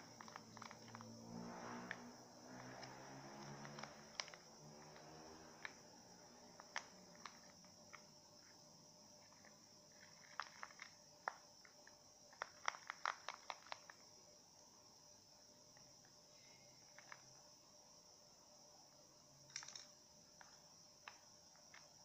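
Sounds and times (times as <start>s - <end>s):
utensil clicking against plastic cup: 0.2s - 1.1s, 6.6s - 8.0s, 12.4s - 14.0s.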